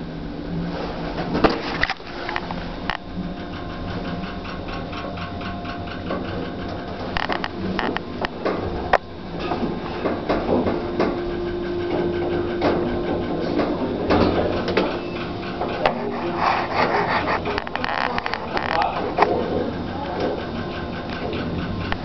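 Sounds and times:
elevator machine hum: 0.0s - 22.0s
clicks and clunks: 4.5s - 11.2s.

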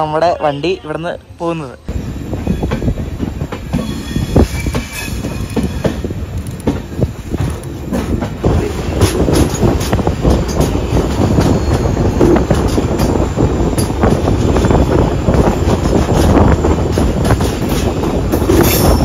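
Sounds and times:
train wheels clacking over rail joints: 2.7s - 19.0s.

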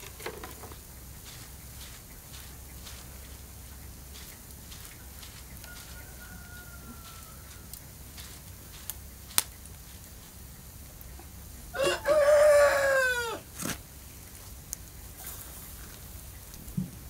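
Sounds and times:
rooster crowing: 5.2s - 8.8s, 11.7s - 13.6s.

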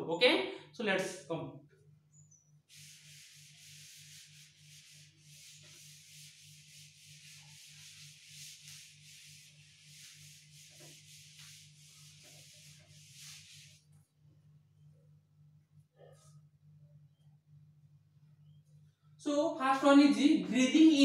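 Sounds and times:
cloth rubbing on chalkboard: 2.6s - 14.1s.

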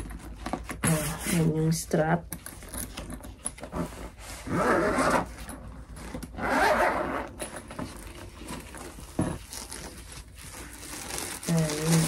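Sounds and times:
zipper being pulled: 3.6s - 12.0s.

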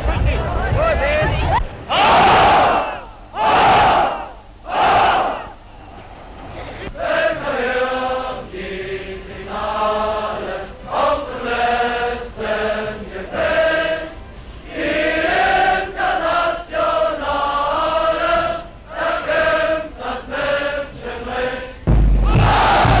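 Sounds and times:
crowd singing in unison: 6.6s - 23.0s.

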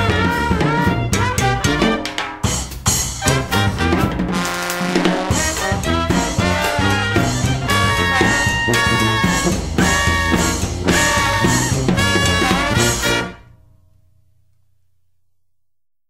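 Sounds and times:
brass section held notes: 0.0s - 2.3s, 3.2s - 13.6s
big band swing music: 0.0s - 13.5s.

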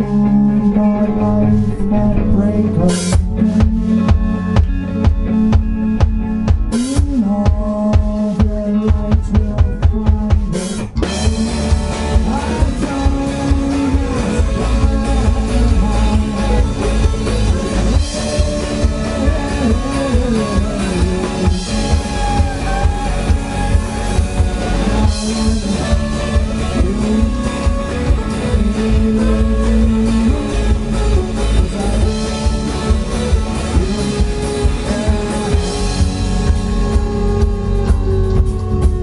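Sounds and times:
electric guitar: 0.0s - 39.0s
drum kit beat: 2.6s - 39.0s
fiddle: 11.0s - 39.0s.

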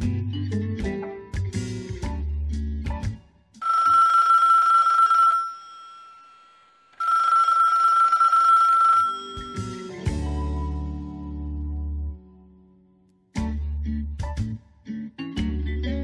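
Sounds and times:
music: 0.0s - 3.6s, 9.2s - 16.0s
old-fashioned telephone bell ringing: 3.6s - 10.1s.

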